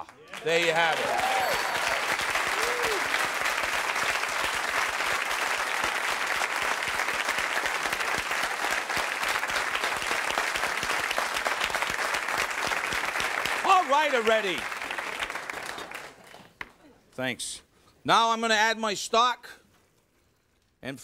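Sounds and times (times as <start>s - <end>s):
audience applauding: 0.0s - 16.5s.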